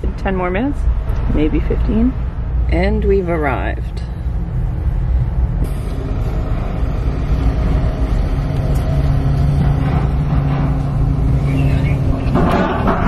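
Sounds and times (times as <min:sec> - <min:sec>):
car engine hum inside cabin: 0:00.0 - 0:13.0.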